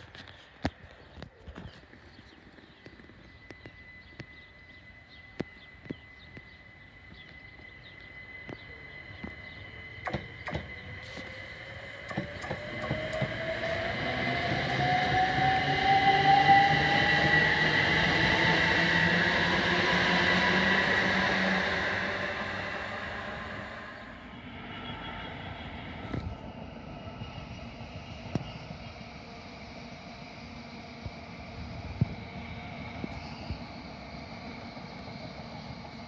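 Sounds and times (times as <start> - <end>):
wheels rumbling on rails: 0.0 - 36.0
electric motor whine: 2.9 - 24.3
steady high tone: 4.1 - 27.2.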